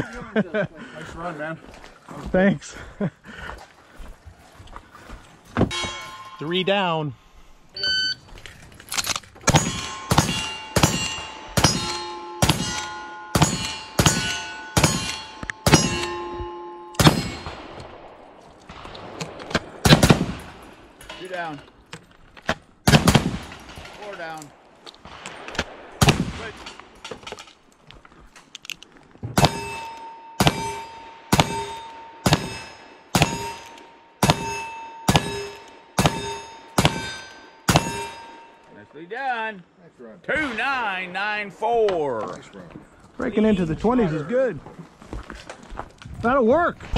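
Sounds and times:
ringing steel target: 0:05.7 - 0:07.2, 0:09.5 - 0:18.0, 0:29.4 - 0:38.7
rifle shots: 0:17.0 - 0:20.8, 0:22.8 - 0:24.2, 0:25.0 - 0:26.9, 0:29.4 - 0:33.6, 0:34.2 - 0:38.1.

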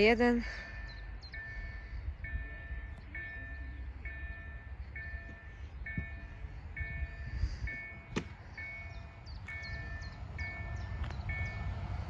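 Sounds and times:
level crossing bell ringing: 0:00.0 - 0:11.7
low wind rumble: 0:00.0 - 0:12.0.

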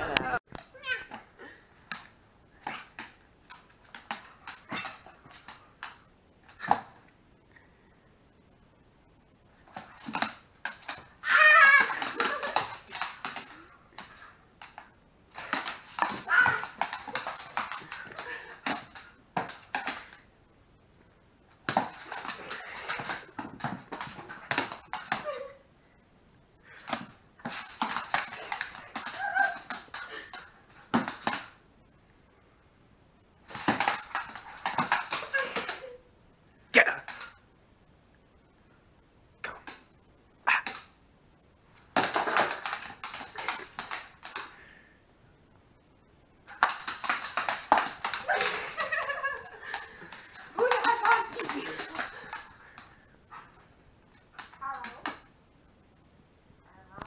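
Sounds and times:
dog claws scrabbling on wood floor: 0:09.6 - 0:20.2, 0:21.6 - 0:25.2, 0:26.9 - 0:31.6, 0:33.5 - 0:35.9, 0:41.9 - 0:44.5, 0:46.5 - 0:53.6.

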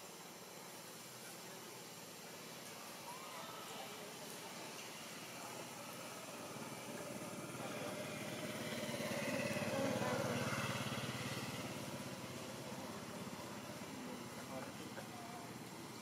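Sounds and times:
passing vehicle engine: 0:05.6 - 0:16.0.

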